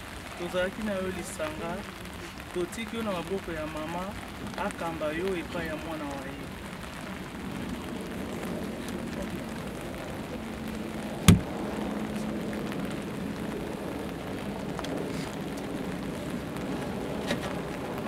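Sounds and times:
sharp thud: 11.3s - 11.5s
soil falling onto coffin: 11.3s - 11.5s.

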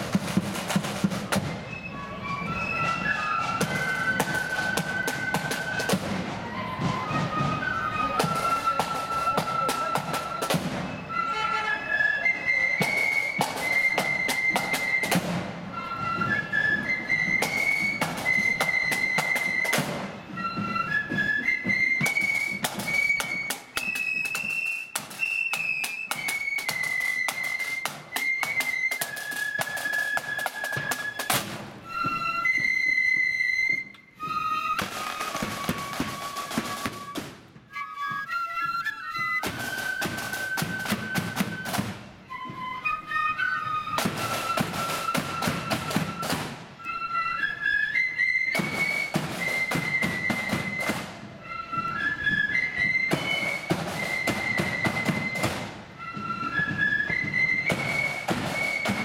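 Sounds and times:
rattling snare drums: 0.0s - 1.7s, 2.8s - 11.0s, 12.8s - 15.6s, 16.8s - 20.2s, 21.4s - 31.8s, 34.8s - 37.6s, 39.4s - 42.1s, 44.0s - 46.7s, 48.5s - 51.2s, 52.9s - 59.0s
flutes playing melody: 0.0s - 59.0s.

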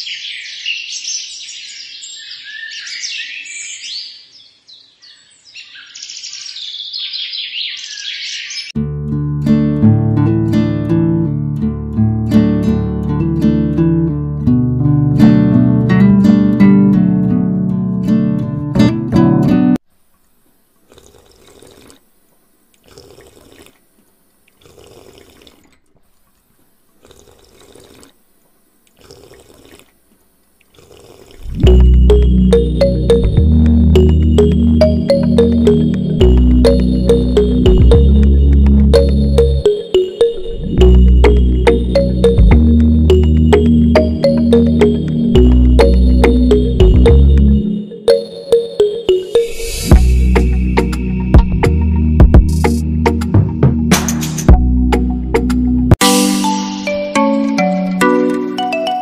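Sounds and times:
small birds chirping: 0.0s - 8.8s
water bursts: 20.8s - 22.1s, 22.8s - 28.2s, 28.9s - 31.8s.

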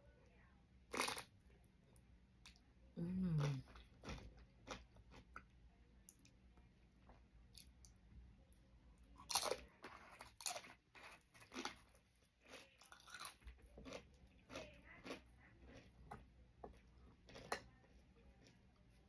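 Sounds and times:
crunching tortilla chips: 9.2s - 15.8s.

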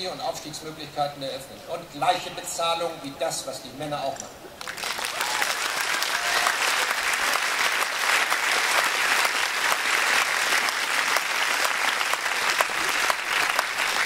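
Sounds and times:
audience applauding: 4.6s - 14.0s.

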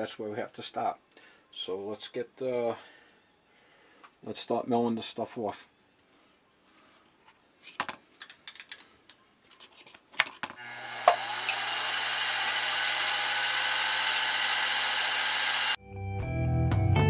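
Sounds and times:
milling machine motor whine: 10.6s - 15.8s.

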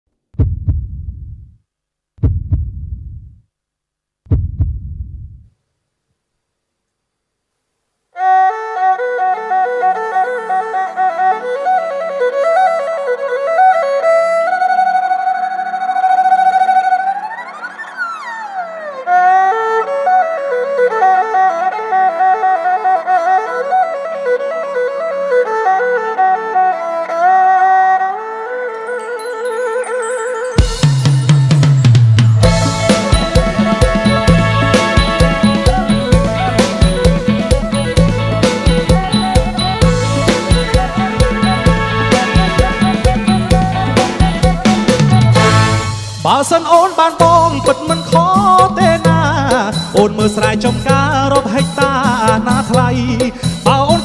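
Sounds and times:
heartbeat double thuds: 0.3s - 1.6s, 2.2s - 3.4s, 4.2s - 5.5s
bowed two-string fiddle melody: 8.2s - 30.7s, 32.4s - 46.3s.

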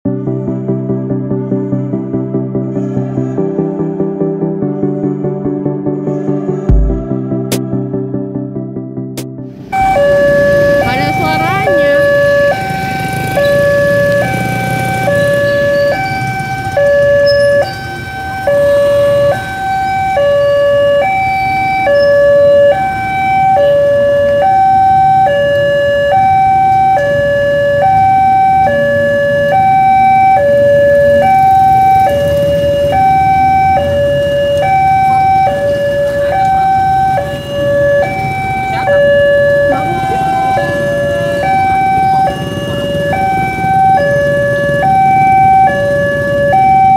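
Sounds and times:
two-tone electronic crossing alarm: 9.6s - 46.9s
motorcycle engines running: 9.8s - 46.9s.

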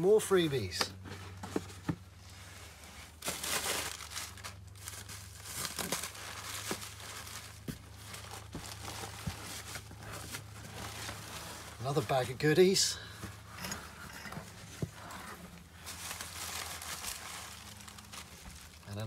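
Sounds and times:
plastic packing crinkling: 3.1s - 12.7s, 14.5s - 19.0s.

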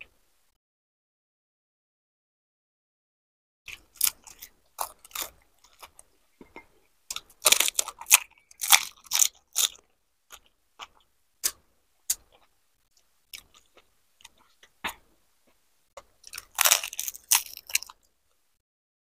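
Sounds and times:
crisp shells crunching when chewed: 3.7s - 12.5s, 13.3s - 14.7s, 16.0s - 18.1s.

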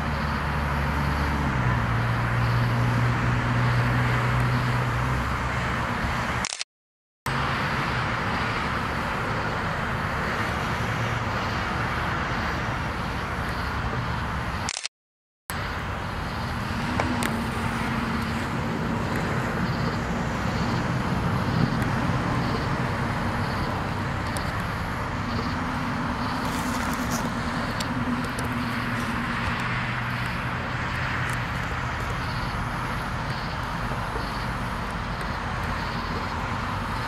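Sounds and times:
distant road traffic: 0.0s - 6.6s, 7.3s - 14.9s, 15.5s - 37.0s
low engine drone: 0.0s - 6.6s, 15.5s - 37.0s.

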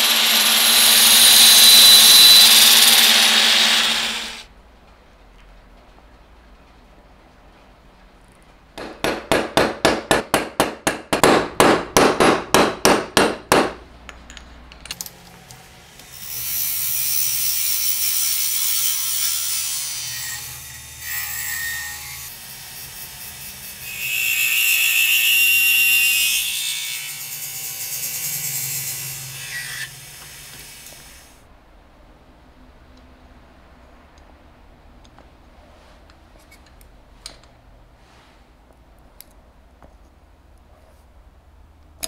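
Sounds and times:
drill boring with high whine: 0.0s - 4.4s
turning tool scraping on lathe: 0.0s - 4.4s.

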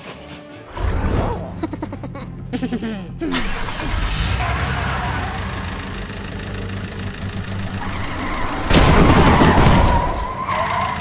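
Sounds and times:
cartoon car engine running: 3.2s - 9.8s.

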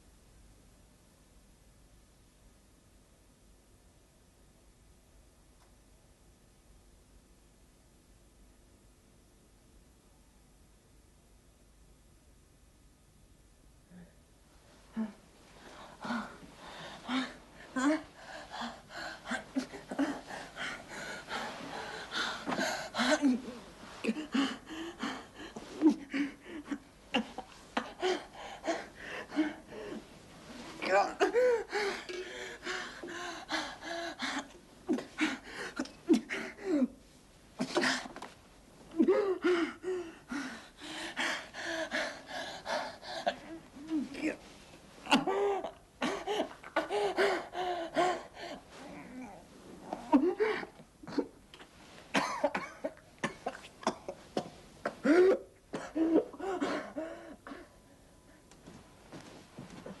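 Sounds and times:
man coughing and moaning: 52.2s - 56.9s.

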